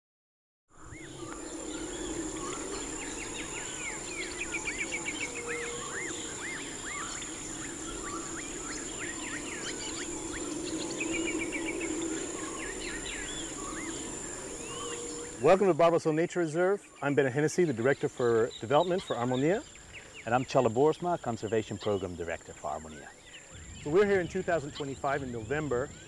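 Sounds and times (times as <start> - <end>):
birds whistling and trilling: 0.8 - 15.7, 16.8 - 26.0
high-pitched insect drone: 0.8 - 15.7
low continuous chorus: 0.8 - 26.0.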